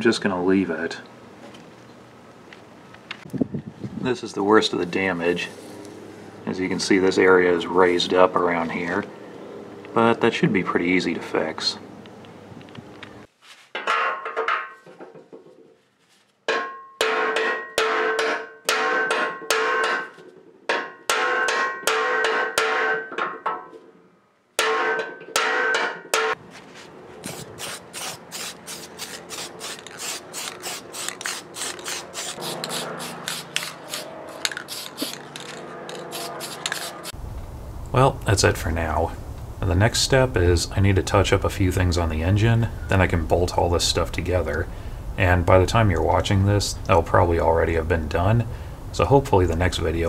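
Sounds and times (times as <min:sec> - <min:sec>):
ringing hammer blows on steel: 0:16.5 - 0:20.2, 0:20.8 - 0:23.2, 0:24.6 - 0:26.4.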